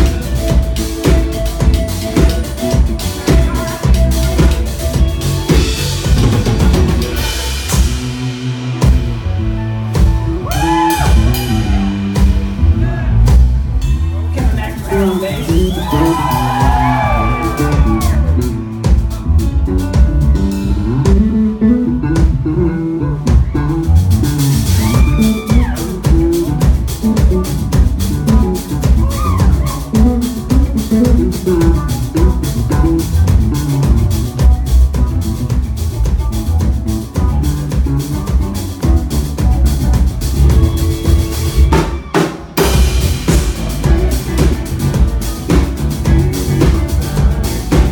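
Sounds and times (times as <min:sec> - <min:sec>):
person singing: 0:00.0 - 0:08.4, 0:14.4 - 0:19.1, 0:24.7 - 0:39.5, 0:40.4 - 0:47.9
drum kit beat: 0:00.0 - 0:47.9.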